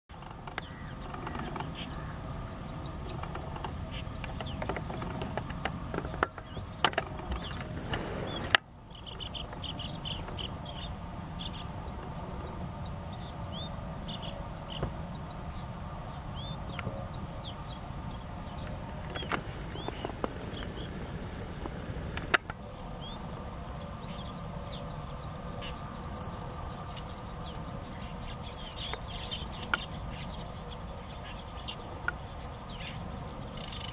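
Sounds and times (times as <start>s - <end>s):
insect hiss: 0.1s - 33.9s
birds chirping: 0.2s - 21.0s, 23.0s - 33.9s
low background rumble: 0.7s - 22.2s.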